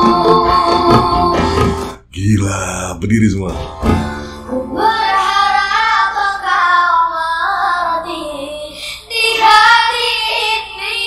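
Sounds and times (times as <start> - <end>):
person singing pop ballad: 0.0 - 2.0
backing music: 0.0 - 6.0.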